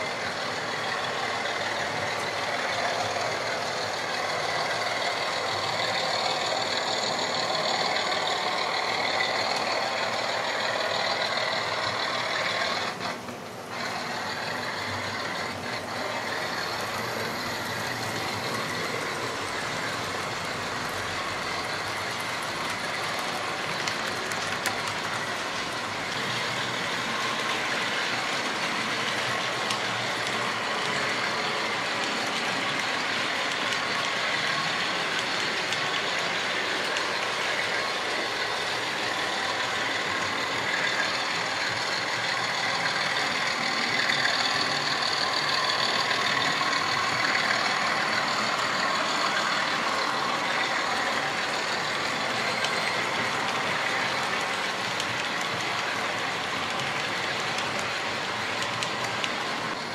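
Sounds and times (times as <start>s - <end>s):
model trains running on rails: 0.0s - 59.9s.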